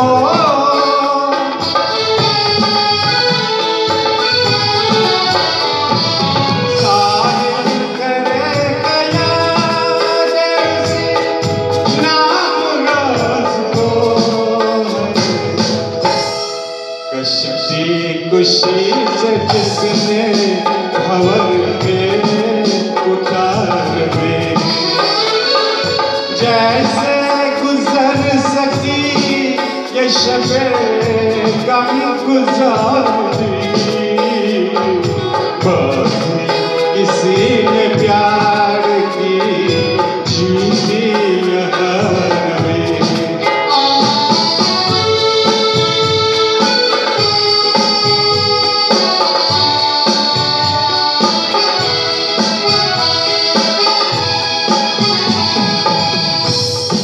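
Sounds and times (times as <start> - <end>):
live band playing: 0.0 - 57.0
man singing into microphone: 0.0 - 57.0.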